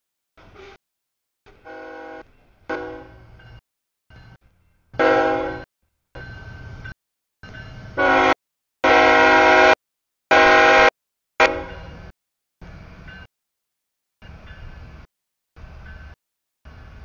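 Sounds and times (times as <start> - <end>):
low rumble of train: 0.4 - 0.8, 1.5 - 13.3, 14.2 - 17.0
locomotive air horn chord: 1.5 - 3.3, 5.0 - 5.7, 8.0 - 12.0.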